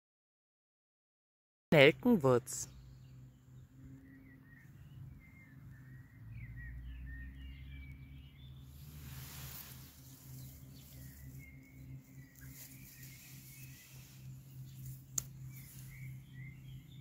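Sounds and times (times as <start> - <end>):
songbirds chirping: 1.8 - 17.0
steady low rumble: 8.6 - 17.0.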